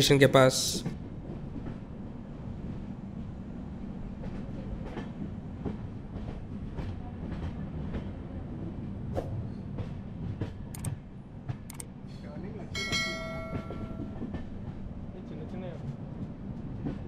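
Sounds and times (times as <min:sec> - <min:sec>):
train rumbling on track: 0:00.0 - 0:17.0
wheels clicking on rails: 0:12.8 - 0:14.6.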